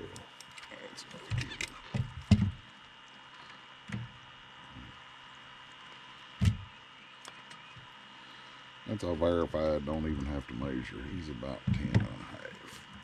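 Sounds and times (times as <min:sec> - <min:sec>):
knocks and thumps in boat: 0:01.3 - 0:02.6, 0:06.4 - 0:06.7, 0:11.6 - 0:12.2.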